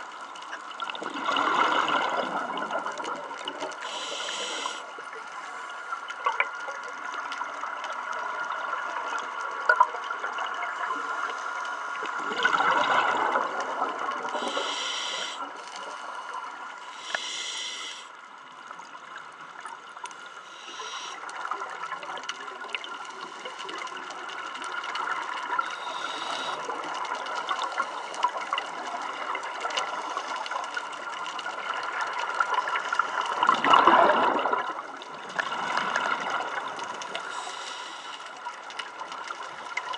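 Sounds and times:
underwater hum: 0:00.0 - 0:39.9
scuba regulator breathing: 0:03.8 - 0:06.0, 0:14.4 - 0:18.1, 0:20.4 - 0:21.3, 0:25.6 - 0:27.0, 0:37.2 - 0:38.5.

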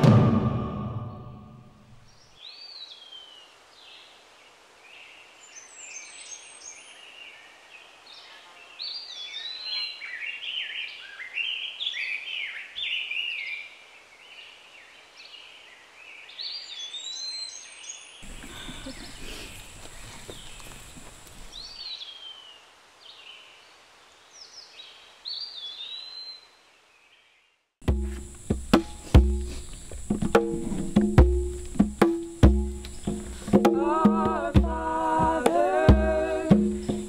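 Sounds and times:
songbirds singing: 0:02.0 - 0:27.6, 0:28.2 - 0:37.0.

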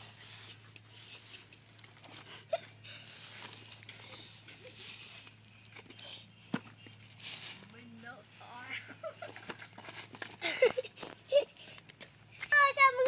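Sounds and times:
leaves rustling into plastic bucket: 0:06.6 - 0:10.4.

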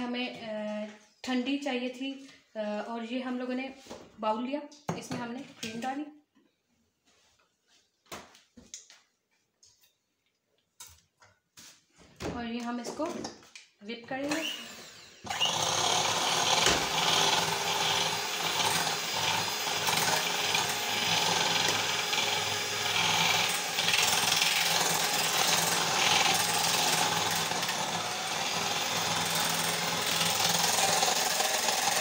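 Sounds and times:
electric hand mixer whipping cream: 0:14.3 - 0:32.0.

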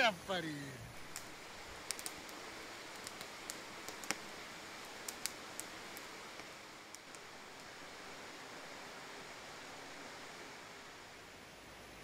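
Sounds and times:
fire crackling and popping: 0:00.0 - 0:11.0
fire hissing: 0:00.0 - 0:12.0.

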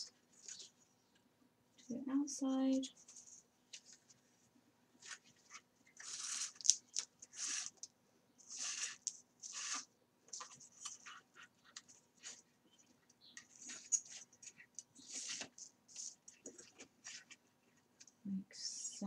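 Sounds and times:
paper rustling: 0:02.9 - 0:04.3, 0:05.0 - 0:18.1
thread rasping through paper: 0:05.0 - 0:18.2.

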